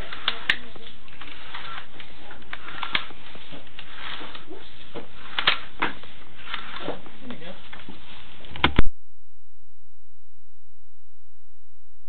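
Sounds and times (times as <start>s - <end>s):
cable clicks and scrapes: 0.0s - 8.8s.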